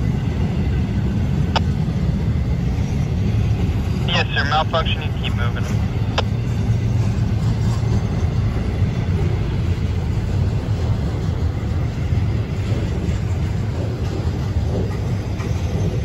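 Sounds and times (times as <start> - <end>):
freight train rumbling: 0.0 - 16.0.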